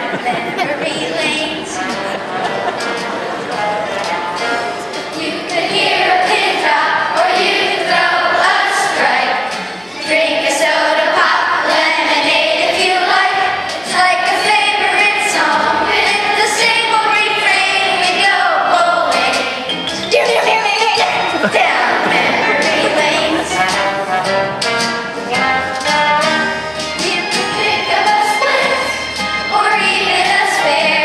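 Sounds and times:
boy singing: 0:00.0 - 0:02.1, 0:20.2 - 0:23.9, 0:27.0 - 0:28.9
musical accompaniment: 0:00.0 - 0:31.0.

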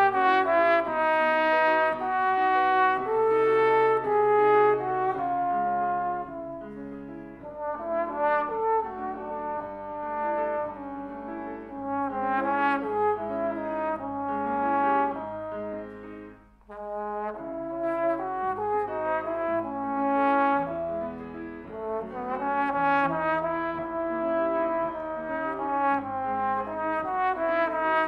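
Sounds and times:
piano accompaniment: 0:00.0 - 0:28.0
trombone melody: 0:00.0 - 0:28.0.

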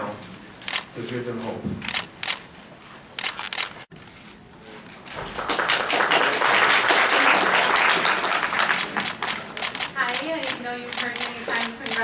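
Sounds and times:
camera shutters clicking: 0:00.6 - 0:00.9, 0:01.8 - 0:02.5, 0:03.2 - 0:03.9, 0:08.7 - 0:12.0
people applauding: 0:05.1 - 0:09.6.

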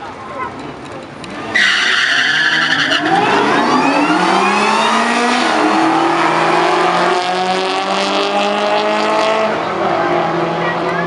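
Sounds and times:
car engines revving: 0:00.0 - 0:11.0
tyre squeal: 0:01.5 - 0:03.2.

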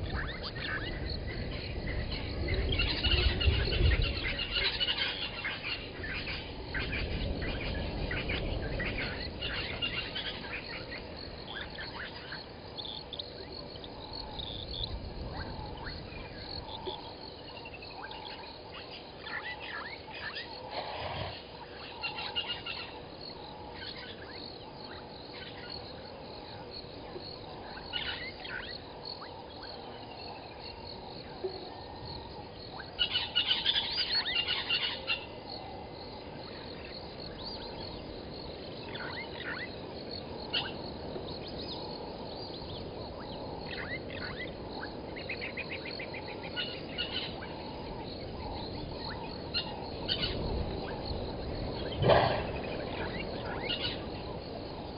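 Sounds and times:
birds calling and chirping: 0:00.0 - 0:25.9, 0:32.2 - 0:35.6, 0:40.4 - 0:54.6
background hiss: 0:00.0 - 0:54.9.

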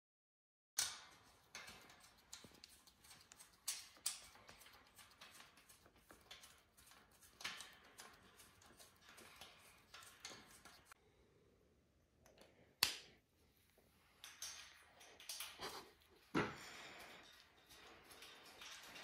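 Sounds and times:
allen wrench clicks and scrapes: 0:00.8 - 0:11.0, 0:14.1 - 0:19.0.

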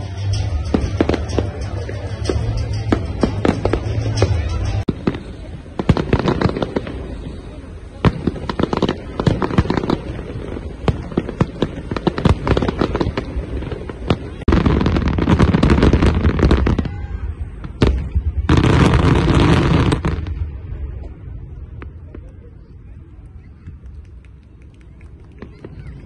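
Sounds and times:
fireworks bangs and crackle: 0:00.0 - 0:26.0.

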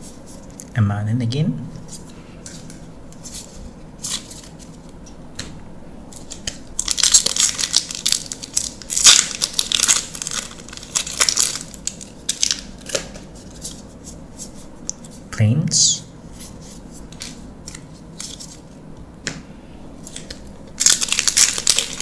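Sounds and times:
foil wrapper tearing and crinkling: 0:06.2 - 0:13.6, 0:20.1 - 0:22.0.

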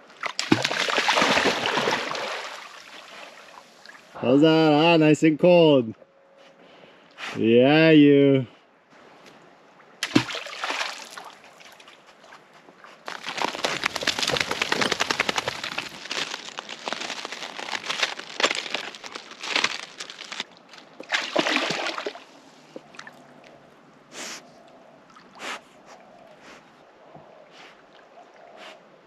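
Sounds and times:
dog splashing in water: 0:00.2 - 0:03.0, 0:10.0 - 0:12.0, 0:13.0 - 0:22.2.

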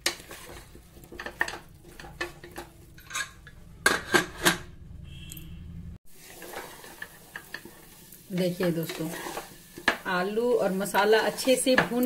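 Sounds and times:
wooden spatula scraping a pot: 0:00.0 - 0:03.4, 0:06.2 - 0:12.0.

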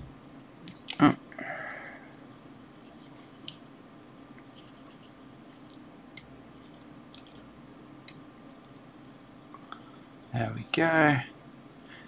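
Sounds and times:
wire being twisted by hand: 0:00.0 - 0:01.0
low room hum: 0:00.0 - 0:12.0.

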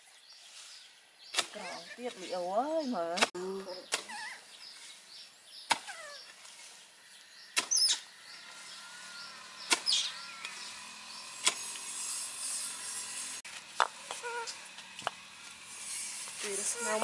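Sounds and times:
hoe chopping into soil: 0:05.6 - 0:06.6, 0:09.6 - 0:10.1, 0:11.4 - 0:11.9.

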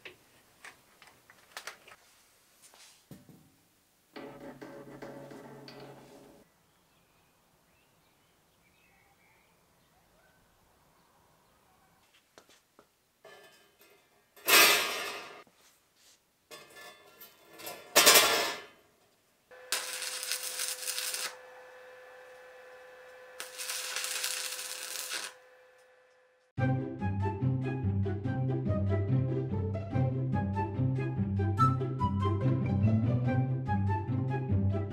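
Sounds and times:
steel mesh clattering on metal: 0:13.2 - 0:15.4, 0:16.5 - 0:18.7
arc welding crackling hiss: 0:19.5 - 0:25.4
welder humming: 0:19.5 - 0:26.5.

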